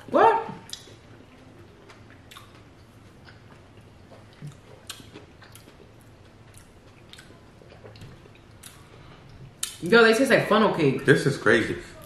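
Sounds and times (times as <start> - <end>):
steady low hum: 0.0 - 12.0
chewing clicks and smacks: 1.8 - 9.8.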